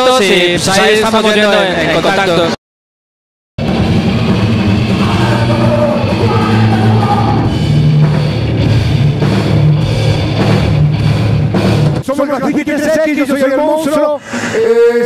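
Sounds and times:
bass guitar: 3.6s - 12.0s
drum kit: 3.6s - 13.0s.

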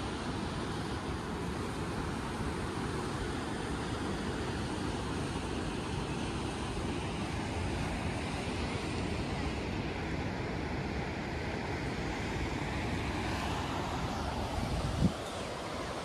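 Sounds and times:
wind rumbling on microphone: 9.2s - 16.0s.

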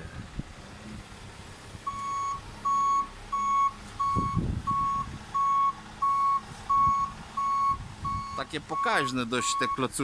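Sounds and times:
reversing alarm beeping: 1.9s - 9.9s.

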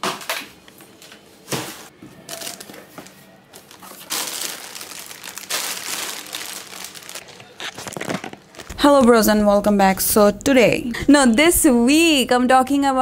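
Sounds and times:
plastic wrapping crinkling: 2.2s - 9.0s.

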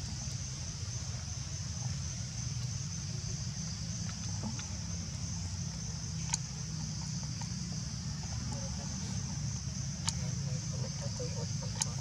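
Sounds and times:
insects droning: 0.0s - 12.0s
faint ticks: 5.7s - 7.6s, 10.0s - 10.4s.

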